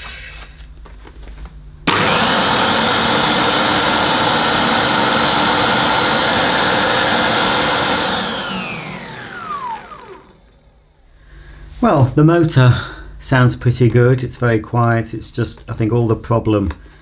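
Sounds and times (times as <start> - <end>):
upright vacuum cleaner running: 1.9 - 10.8.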